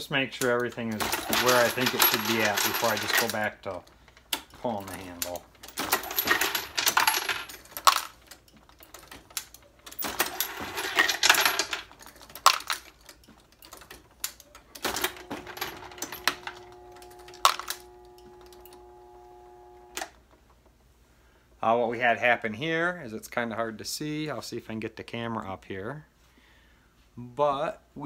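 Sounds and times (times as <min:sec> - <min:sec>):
brass cases clinking and rattling: 0:00.6 - 0:18.9
steady hum: 0:14.9 - 0:20.1.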